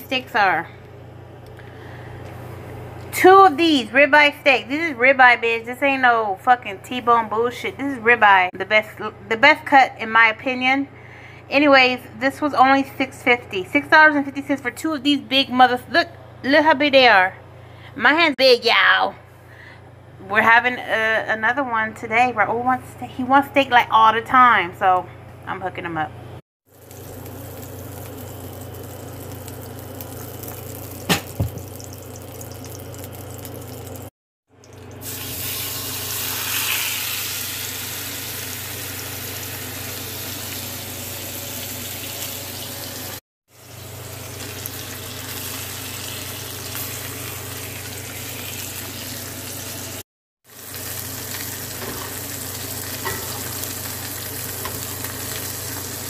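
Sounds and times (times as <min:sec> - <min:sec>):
steak sizzling in skillet: 0:26.7 - 0:34.0, 0:35.0 - 0:56.0.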